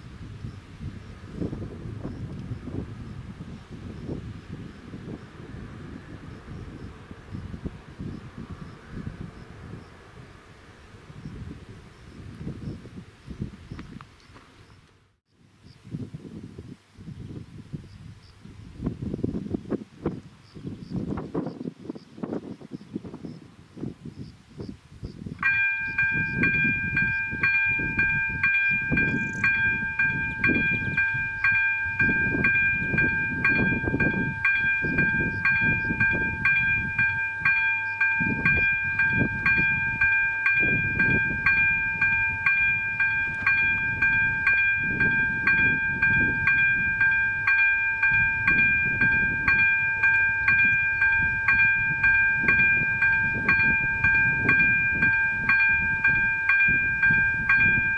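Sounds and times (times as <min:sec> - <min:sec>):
gusty wind rumble: 0:00.0 - 0:14.8, 0:15.4 - 0:57.9
level crossing warning bell: 0:25.4 - 0:57.9.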